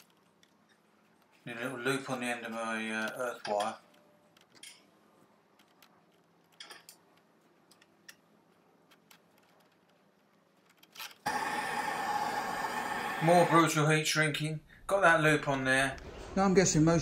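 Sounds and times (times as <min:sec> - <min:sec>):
gas blowtorch hissing: 0:11.3 - 0:13.7.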